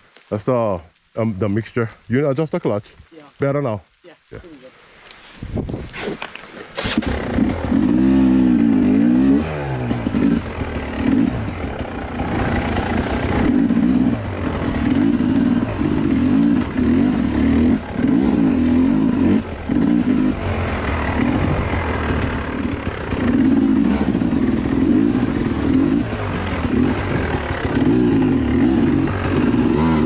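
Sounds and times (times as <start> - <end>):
dirt bike engine revving: 6.8 - 30.0.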